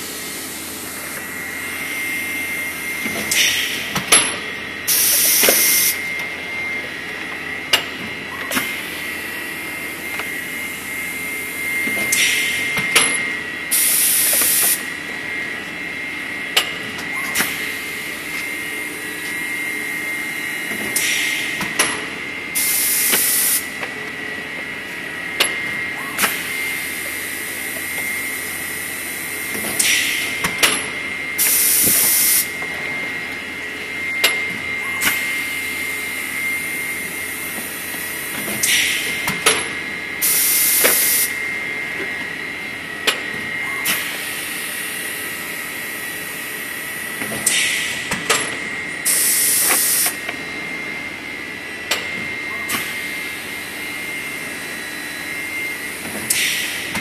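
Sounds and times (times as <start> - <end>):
machine hum with high whine: 0.0 - 57.0
sharp mechanical clicks and knocks: 20.7 - 22.1, 38.3 - 39.8, 47.2 - 48.7.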